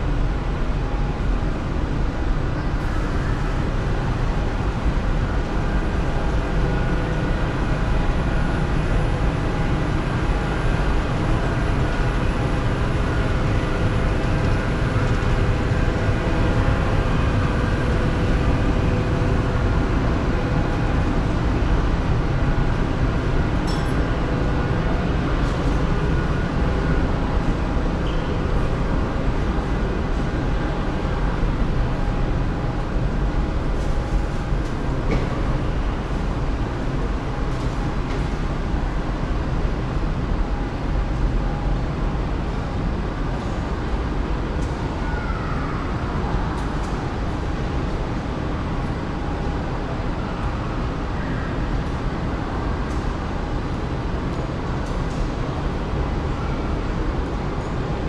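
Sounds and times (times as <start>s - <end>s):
mechanical drone: 0.0s - 45.0s.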